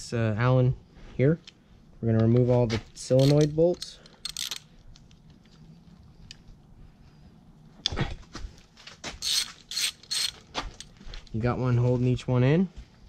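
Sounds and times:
hand ratchet clicking: 0:03.0 - 0:04.7, 0:09.2 - 0:10.9.

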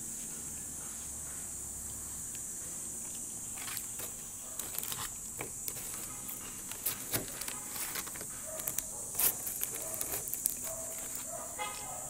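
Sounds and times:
steady high-pitched hiss: 0:00.0 - 0:12.0
paper packet crinkling: 0:03.5 - 0:11.9.

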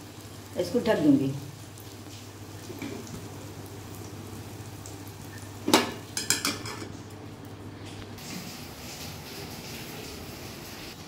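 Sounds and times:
metal plate clanking on pan: 0:05.7 - 0:06.9.

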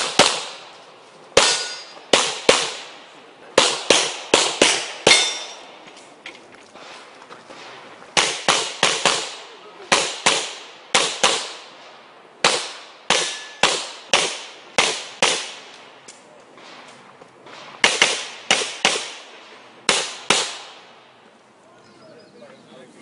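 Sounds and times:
pistol shots echoing: 0:00.0 - 0:00.7, 0:01.4 - 0:05.8, 0:07.6 - 0:15.9, 0:17.5 - 0:21.0.

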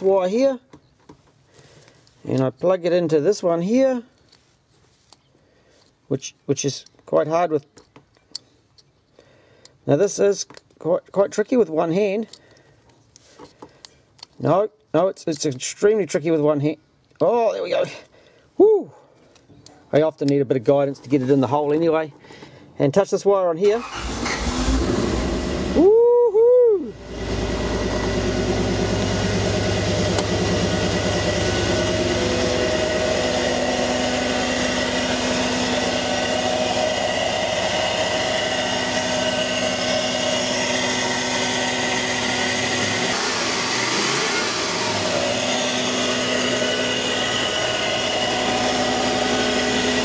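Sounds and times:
car engine starting and idling: 0:23.6 - 0:25.9, 0:26.9 - 0:50.0.

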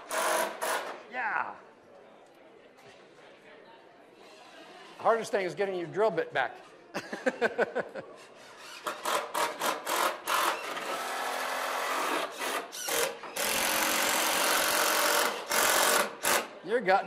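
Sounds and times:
cordless drill driving screws: 0:00.0 - 0:01.0, 0:08.4 - 0:16.6.

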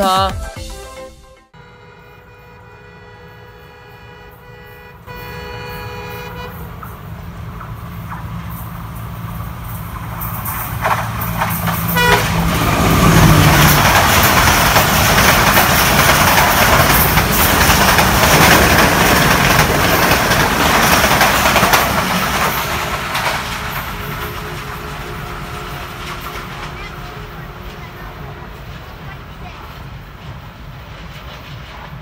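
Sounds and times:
diesel locomotive engine: 0:01.4 - 0:32.0
train horn toot: 0:01.5 - 0:06.8, 0:11.9 - 0:13.7, 0:23.8 - 0:29.1
train wheels clattering over rail joints: 0:06.6 - 0:27.9.

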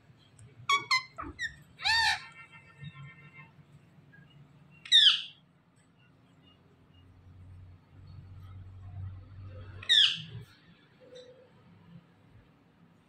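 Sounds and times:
parakeet screech: 0:00.7 - 0:02.4
parakeets chirping: 0:00.7 - 0:02.4, 0:04.8 - 0:05.4, 0:09.7 - 0:10.5
parakeet squawk: 0:00.7 - 0:02.5, 0:04.8 - 0:05.4, 0:09.8 - 0:10.4.

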